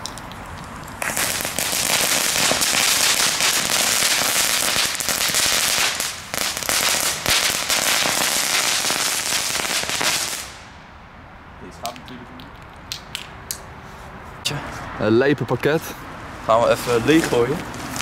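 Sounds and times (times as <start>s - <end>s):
crackling fireworks: 0.0s - 10.7s.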